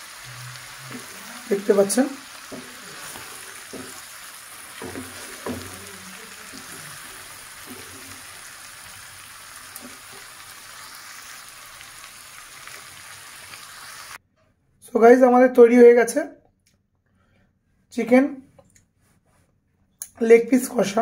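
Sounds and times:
gravy sizzling in a pan: 0.0 - 14.2
soft knocks: 4.7 - 5.9.

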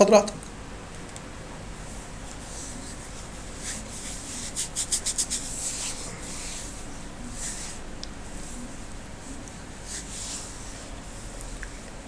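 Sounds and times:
steady low hum: 0.0 - 12.0
scratchy rubbing close to microphone: 2.0 - 11.3.

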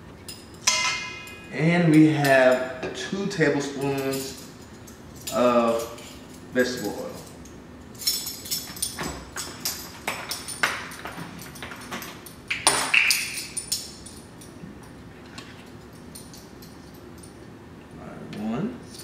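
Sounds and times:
metal spoons clinking and jangling: 0.3 - 3.0, 3.6 - 14.5.

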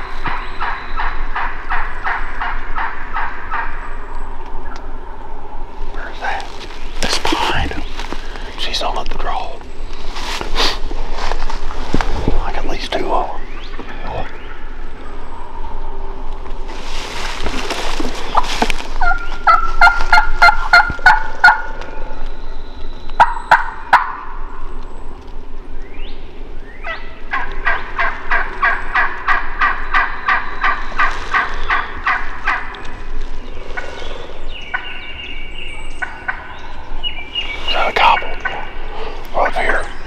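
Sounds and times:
wild turkey yelping: 0.2 - 3.8, 18.3 - 21.8, 23.2 - 24.4, 26.8 - 32.8, 33.7 - 35.0, 36.0 - 36.8.

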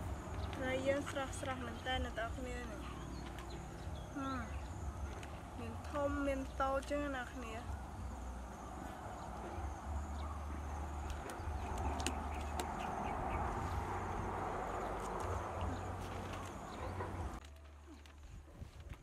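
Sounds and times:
steady outdoor rush: 0.0 - 19.0
wind rumble on microphone: 7.7 - 17.4, 18.1 - 19.0.

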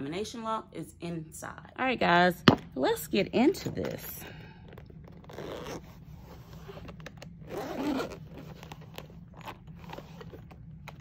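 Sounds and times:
zipper being pulled open: 4.7 - 11.0.

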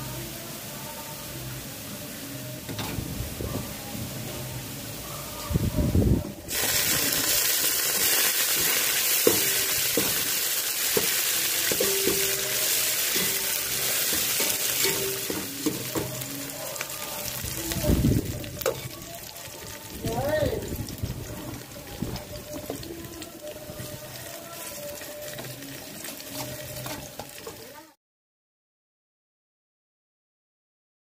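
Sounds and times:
greens sizzling in hot oil: 6.4 - 28.0
spoon clinking and scraping pot: 8.0 - 16.4.

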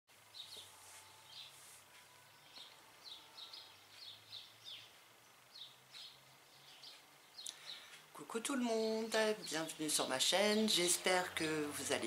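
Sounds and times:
faint bird chirps: 0.3 - 8.0.

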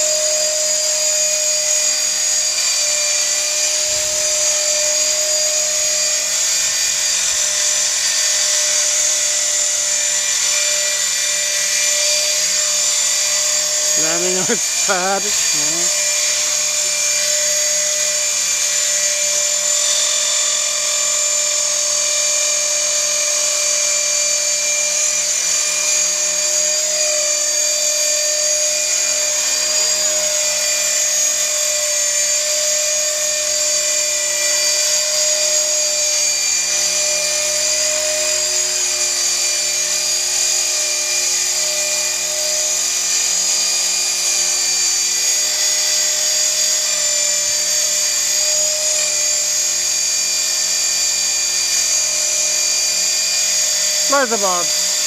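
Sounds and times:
rc helicopter motor whine: 0.0 - 55.0
rotor hum: 0.2 - 20.0.

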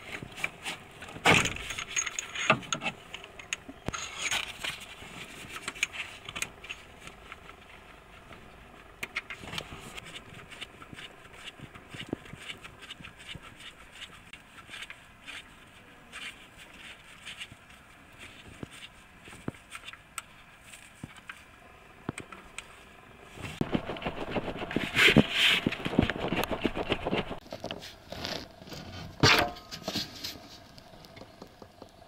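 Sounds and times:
metal tools clinking and scraping: 1.3 - 6.9.

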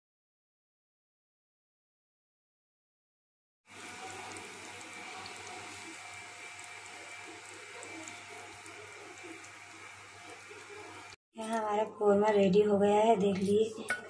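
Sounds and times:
gravy bubbling in a pot: 3.7 - 11.2.

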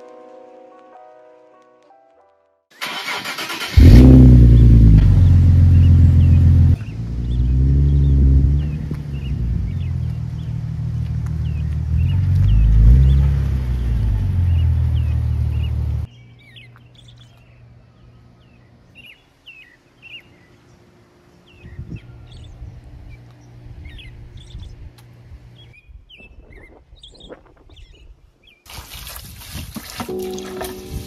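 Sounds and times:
car engine rumble: 2.8 - 16.1
birds chirping: 2.8 - 28.7
hose spraying into plastic bucket: 28.7 - 31.0.

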